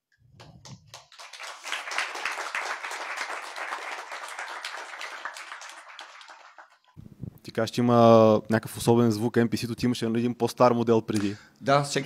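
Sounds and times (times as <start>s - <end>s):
audience applauding: 0.4s - 7.0s.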